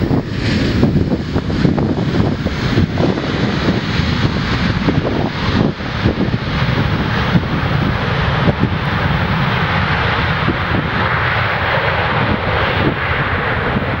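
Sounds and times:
jet engines rushing: 0:00.0 - 0:14.0
wind buffeting microphone: 0:00.0 - 0:14.0.

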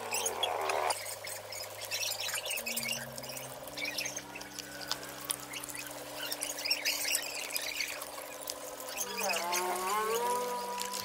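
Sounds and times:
steady low tones: 0:00.0 - 0:11.0.

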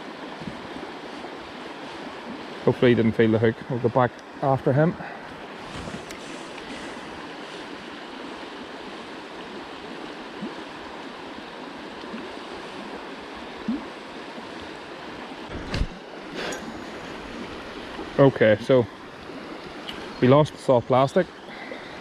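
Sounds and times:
river flowing over stones: 0:00.0 - 0:22.0.

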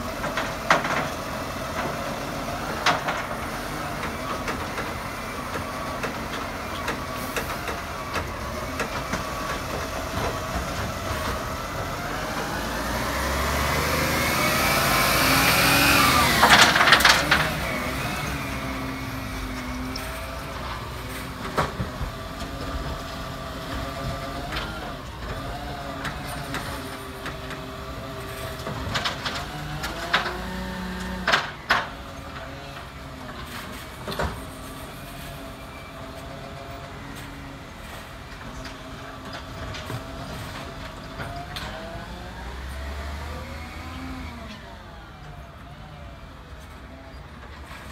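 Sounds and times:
truck diesel engine passing: 0:00.0 - 0:33.8.

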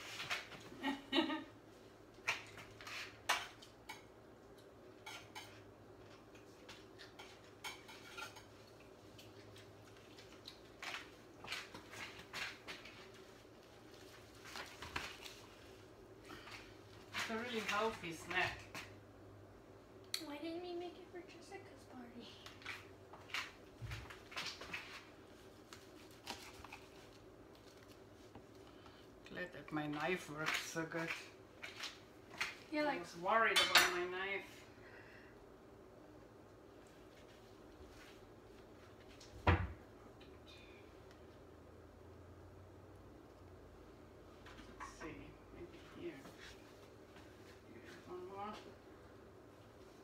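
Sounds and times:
faint steady hum: 0:00.0 - 0:50.0
dishes and utensils clinking: 0:07.0 - 0:08.8, 0:33.5 - 0:34.0.

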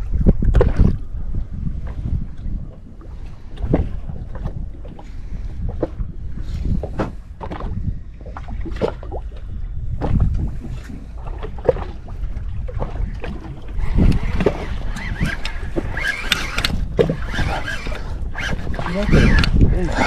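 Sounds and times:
water lapping against boat hull: 0:00.0 - 0:20.0
wind buffeting microphone: 0:00.0 - 0:20.0
fishing line winding in: 0:13.7 - 0:20.0.

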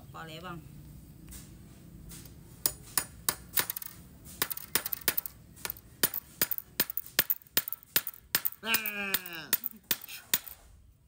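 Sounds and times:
hammer tapping nail through metal: 0:02.7 - 0:10.6.

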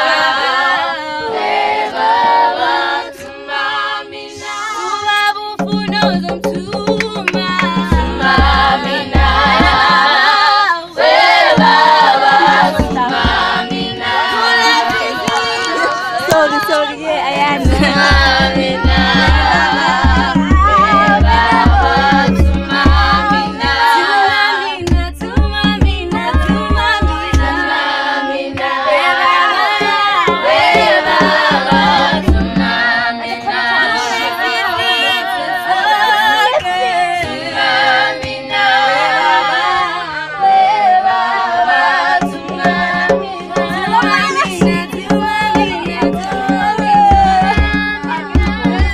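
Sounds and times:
choir singing: 0:00.0 - 0:05.4, 0:07.2 - 0:24.9, 0:26.1 - 0:48.9
rhythmic low beat: 0:05.5 - 0:33.7, 0:41.6 - 0:48.9.

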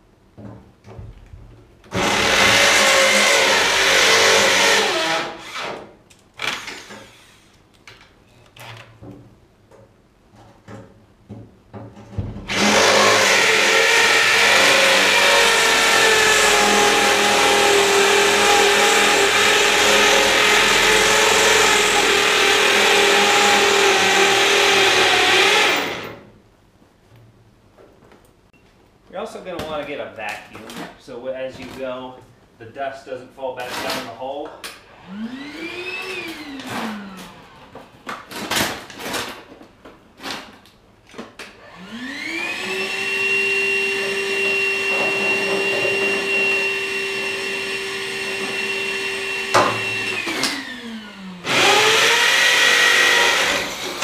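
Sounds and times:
shop vacuum running: 0:12.5 - 0:26.2, 0:34.9 - 0:38.0, 0:41.6 - 0:54.0.

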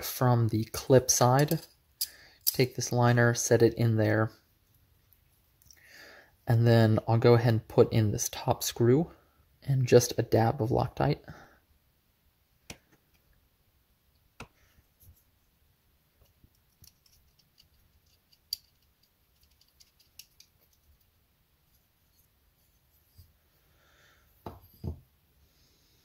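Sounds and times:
small clicks and light taps: 0:16.2 - 0:21.1.

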